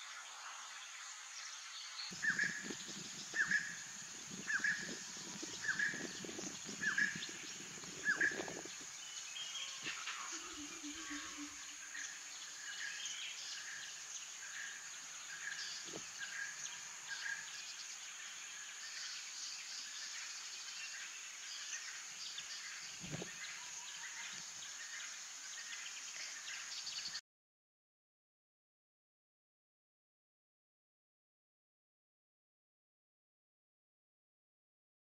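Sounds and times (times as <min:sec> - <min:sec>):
high insect drone: 0:00.0 - 0:27.2.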